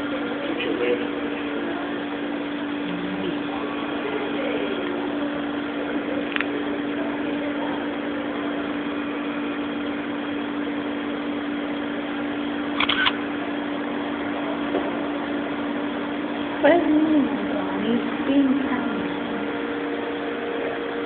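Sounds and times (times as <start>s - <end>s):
mechanical hum: 0.0s - 21.0s
sharp clicks: 12.8s - 13.2s.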